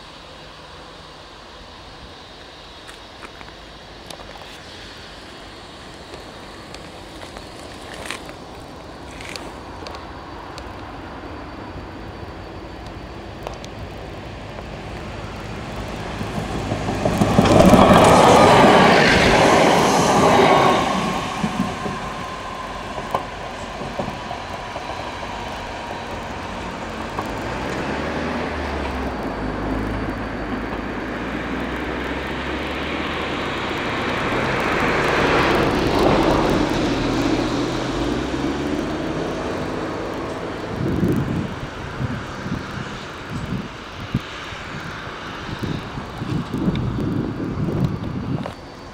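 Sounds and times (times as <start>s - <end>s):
diesel engine drone: 0.0s - 48.9s
train rushing past: 0.0s - 48.9s
wheels clicking over rails: 12.6s - 48.9s.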